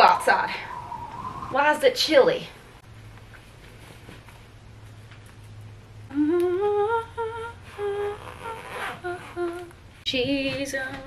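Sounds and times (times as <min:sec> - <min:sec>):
low steady hum: 0:00.0 - 0:11.0
woman humming a tune: 0:06.1 - 0:09.7.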